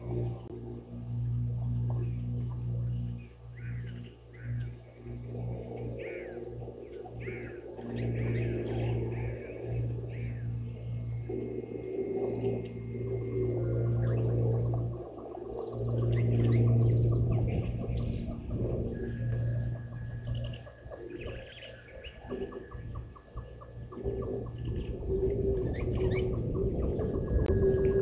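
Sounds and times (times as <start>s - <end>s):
birds chirping: 0.0s - 28.0s
low steady hum: 0.0s - 28.0s
steady high whine: 0.0s - 28.0s.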